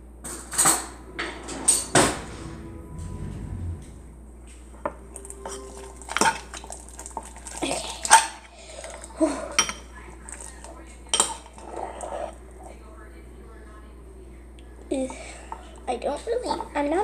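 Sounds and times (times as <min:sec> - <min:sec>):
spoon stirring thick slime: 0:05.1 - 0:12.8.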